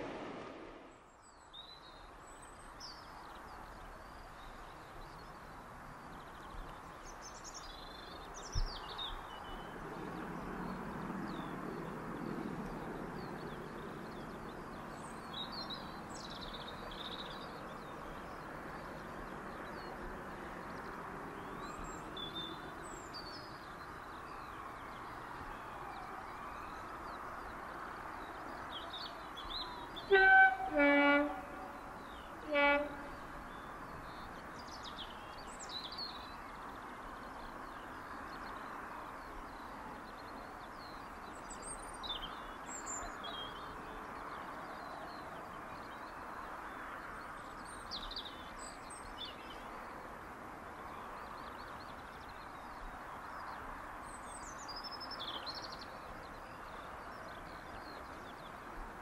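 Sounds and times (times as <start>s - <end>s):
distant locomotive two-tone horn: 30.0s - 33.4s.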